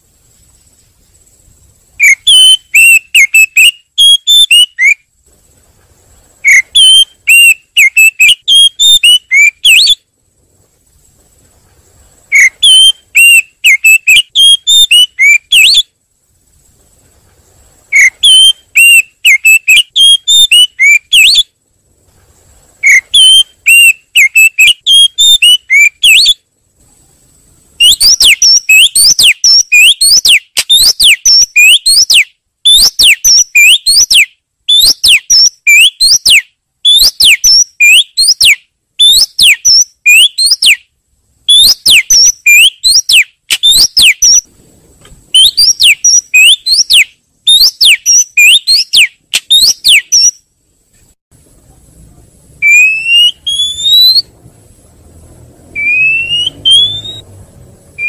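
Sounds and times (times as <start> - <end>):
squeaky whistled bird chatter: 1.9 - 5.1, 6.3 - 10.2, 12.1 - 16.0, 17.8 - 21.6, 22.8 - 26.6, 27.8 - 44.5, 45.3 - 50.5, 52.6 - 54.3, 55.7 - 57.3
quick sweeping whistle notes: 2.0 - 5.0, 6.4 - 10.0, 12.3 - 15.9, 17.9 - 21.5, 22.8 - 26.4, 52.6 - 54.3, 55.7 - 57.4.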